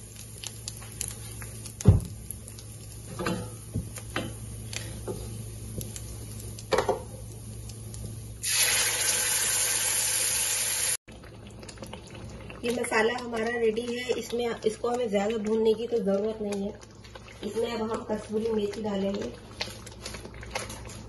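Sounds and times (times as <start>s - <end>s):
loud sizzle of paste in oil: 0.0s - 15.9s
oil frying in a pan: 0.0s - 21.0s.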